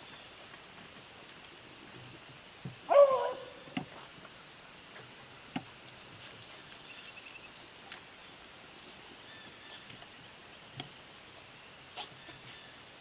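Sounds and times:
dog baying: 2.9s - 3.8s
faint clicks: 3.7s - 11.0s.

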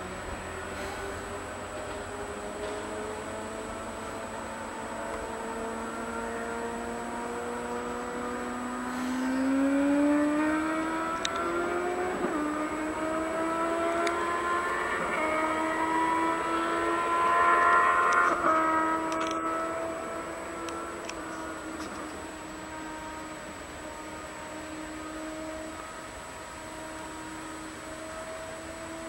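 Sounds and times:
diesel train approaching: 0.0s - 5.0s, 8.8s - 10.1s.

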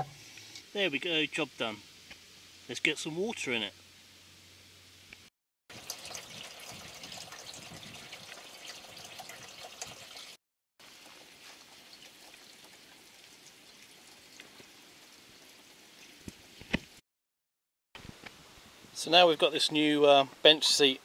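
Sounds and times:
water pouring from hose into barrel: 5.7s - 16.6s.

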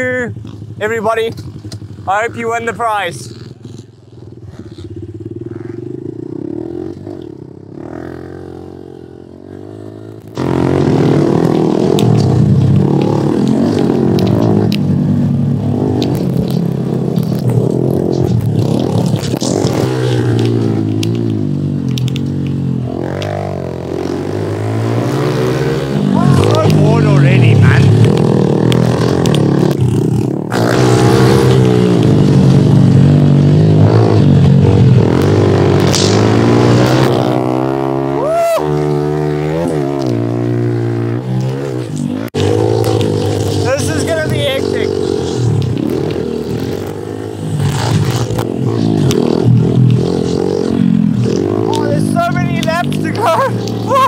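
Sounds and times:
motorbike engines revving: 0.0s - 54.0s
clicks and crackles: 11.4s - 15.0s, 15.8s - 23.4s, 28.0s - 29.9s.

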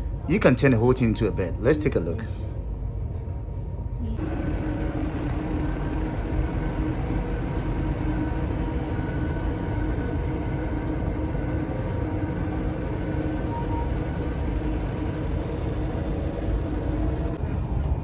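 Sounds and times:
seat electric motor whirring: 4.2s - 17.4s.

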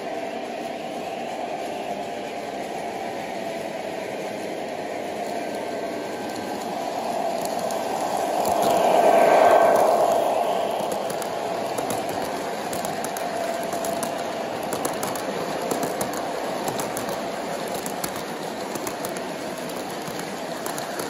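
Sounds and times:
model train humming: 0.0s - 21.0s
wheels clicking over rail joints: 12.0s - 21.0s.

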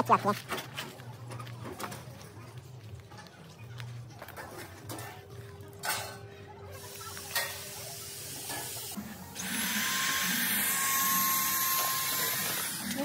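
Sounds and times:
power tool motor whining: 9.3s - 13.0s.

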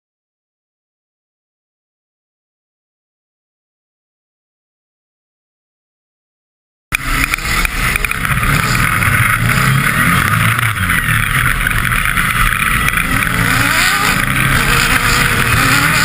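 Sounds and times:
buggy engine revving: 6.9s - 16.0s
road noise: 6.9s - 16.0s.

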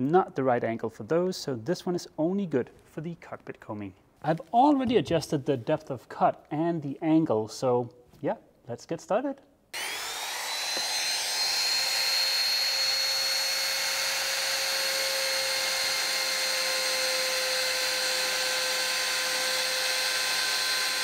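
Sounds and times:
trim router high whine: 9.8s - 21.0s.

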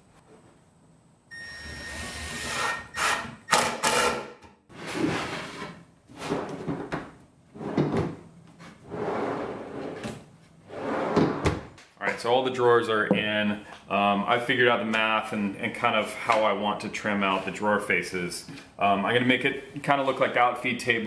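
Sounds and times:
drawers sliding on metal slides: 4.7s - 6.7s, 8.8s - 11.6s.

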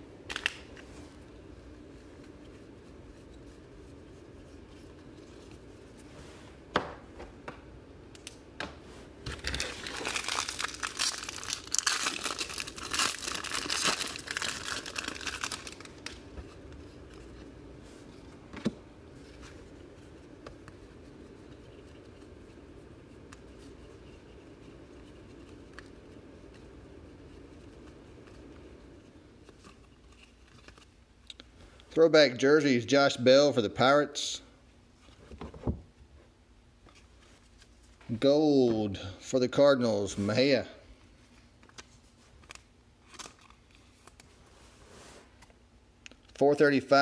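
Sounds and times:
wrapper tearing and crinkling: 9.3s - 16.2s, 42.4s - 44.3s.

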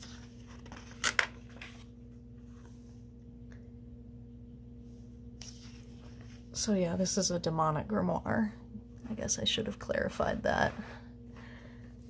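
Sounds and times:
paper rustling: 0.0s - 2.0s
book page turning: 0.0s - 2.7s, 5.4s - 6.4s
steady low hum: 0.0s - 12.0s.

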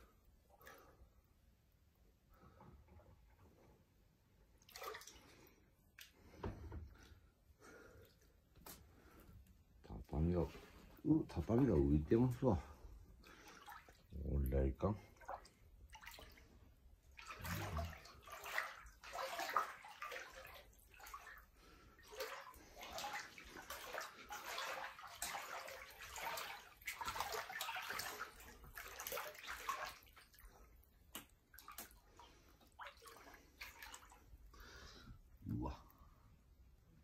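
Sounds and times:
floodwater sloshing and splashing: 4.4s - 9.2s, 9.9s - 36.0s
person wading through water: 4.6s - 6.4s, 10.5s - 36.0s.

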